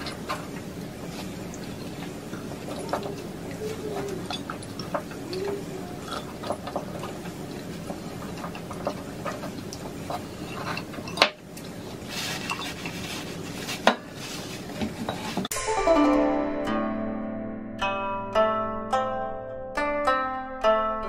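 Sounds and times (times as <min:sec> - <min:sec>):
tableware clattering: 0:02.6 - 0:11.4.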